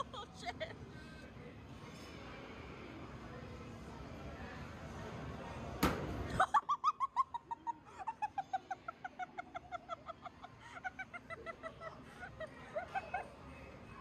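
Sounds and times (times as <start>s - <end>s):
high-pitched laughter: 6.4s - 13.4s.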